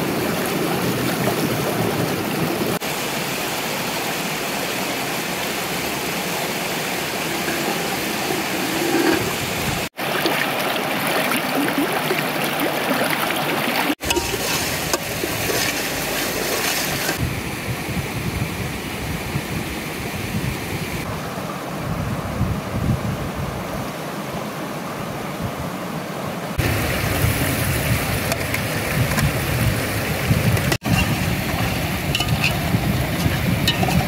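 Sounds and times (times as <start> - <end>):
river running over stones: 0.0 - 17.2, 26.2 - 34.0.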